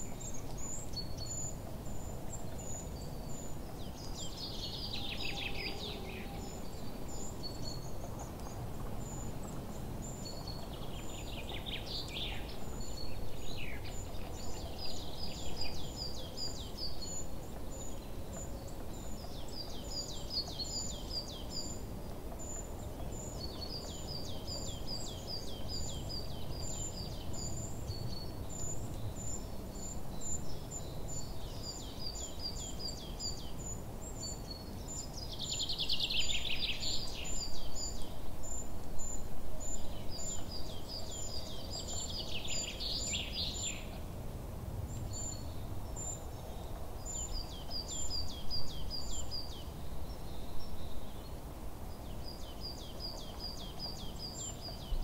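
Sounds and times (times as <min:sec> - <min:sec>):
low steady background hiss: 0:00.0 - 0:55.0.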